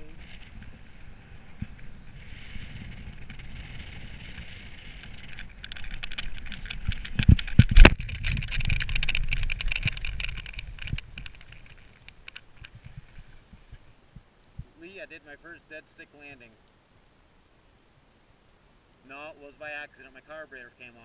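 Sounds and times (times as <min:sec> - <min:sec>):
air rushing over microphone: 0:00.0 - 0:15.1.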